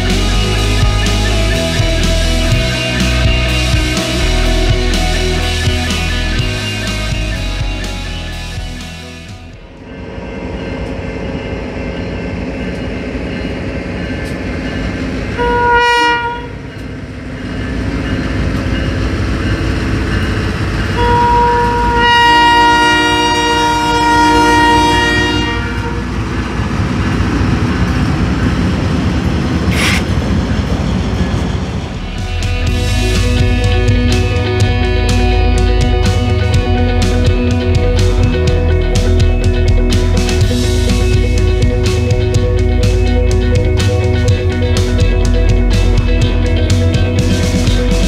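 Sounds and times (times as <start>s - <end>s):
diesel locomotives rumbling: 0.0s - 48.0s
locomotive horn chord: 15.3s - 16.8s, 20.9s - 27.0s.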